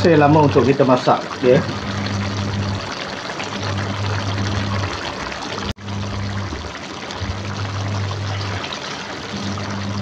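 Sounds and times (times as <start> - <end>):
liquid bubbling in a wok: 0.0 - 10.0
low hum: 1.6 - 5.0, 5.6 - 10.0.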